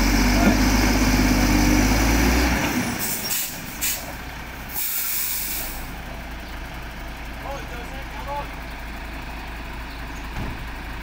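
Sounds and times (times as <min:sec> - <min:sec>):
diesel truck engine under load: 0:00.0 - 0:11.0
air-brake hiss: 0:03.0 - 0:04.1, 0:04.7 - 0:05.9
short air hisses: 0:03.0 - 0:04.1, 0:04.7 - 0:05.9.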